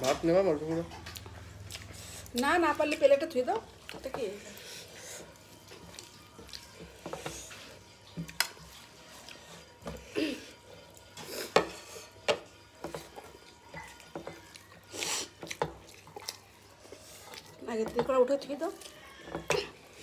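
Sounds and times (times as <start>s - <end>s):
hands squishing rice: 12.4s - 20.0s.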